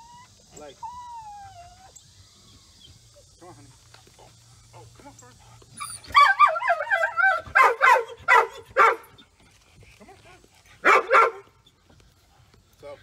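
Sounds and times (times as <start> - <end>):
dog whining: 0.0 - 3.3
dog barking and yipping: 5.8 - 9.2, 10.8 - 11.6.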